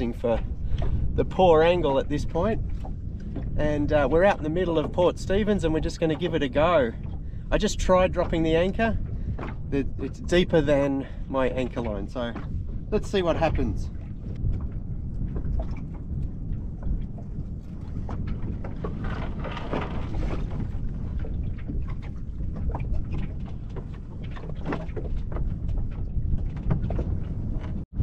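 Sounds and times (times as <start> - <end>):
water lapping against boat hull: 0.0 - 28.0
wind rumbling on microphone: 0.0 - 28.0
short splashes and knocks: 8.0 - 27.8.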